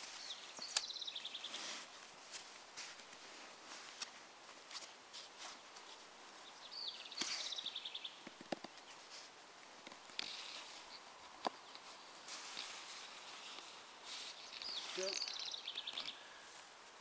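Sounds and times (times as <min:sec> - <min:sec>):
strap rustling: 0:08.2 - 0:16.7.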